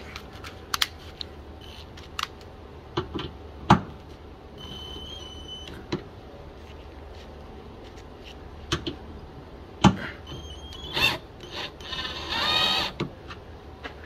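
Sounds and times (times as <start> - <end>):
cordless drill running: 10.8 - 13.0.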